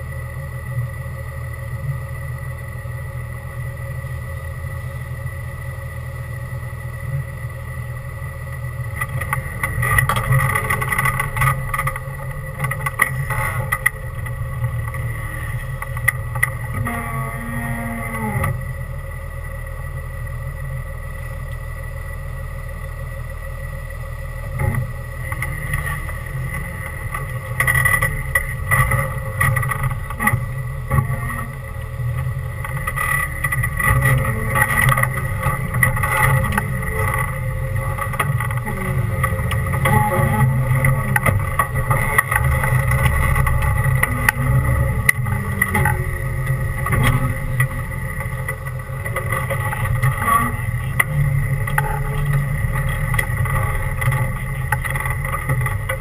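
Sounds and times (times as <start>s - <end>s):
off-road vehicle engine: 0.0s - 56.0s
knocks and rattles: 24.6s - 56.0s.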